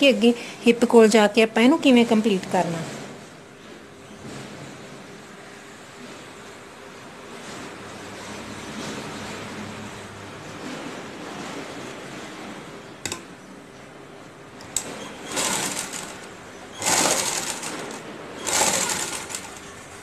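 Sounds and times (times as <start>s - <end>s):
sewing machine stitching: 14.7s - 20.0s.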